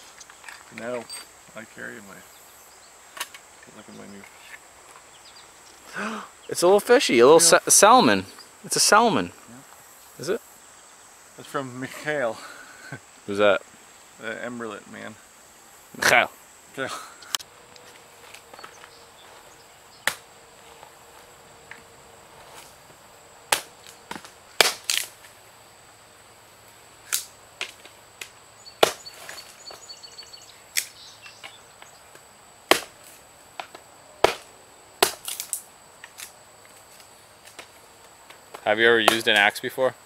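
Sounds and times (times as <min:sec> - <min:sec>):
axe chopping wood: 0:20.0 - 0:20.2, 0:23.5 - 0:25.1, 0:27.6 - 0:29.4, 0:32.7 - 0:33.0, 0:33.6 - 0:35.5.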